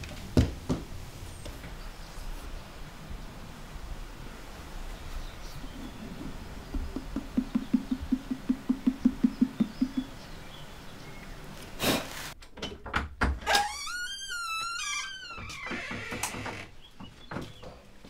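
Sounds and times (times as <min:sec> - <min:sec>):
fingertips tapping clay jar: 0:06.7 - 0:10.2.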